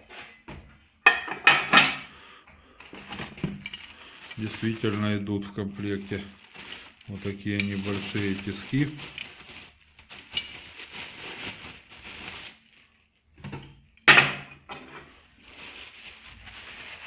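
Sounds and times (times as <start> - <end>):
plastic packaging crinkling: 2.8 - 13.4, 15.1 - 17.0.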